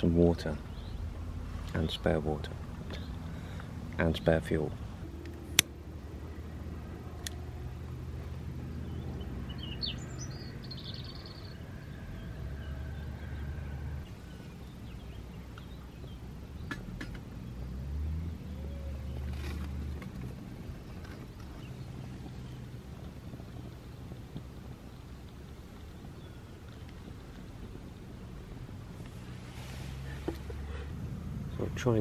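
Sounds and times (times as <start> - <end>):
bird chirp: 0.0 - 2.1, 2.9 - 5.3, 7.7 - 28.5
low outdoor rumble: 0.0 - 32.0.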